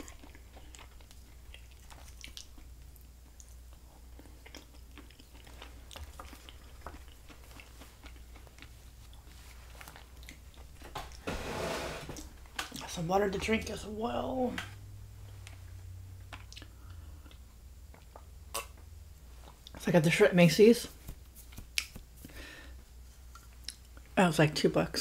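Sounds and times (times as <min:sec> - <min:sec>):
close chewing with mouth clicks: 0:00.0 - 0:11.2, 0:16.2 - 0:19.8, 0:21.0 - 0:22.4, 0:23.1 - 0:24.1.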